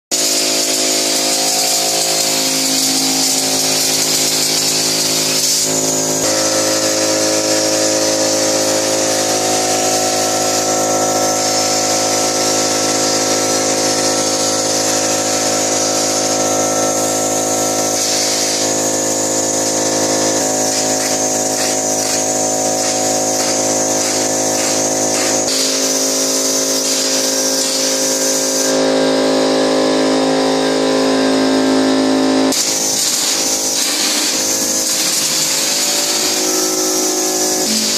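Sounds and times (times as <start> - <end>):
spray gun air hiss: 0.2 - 28.8, 32.5 - 37.9
motor hum: 29.6 - 37.9.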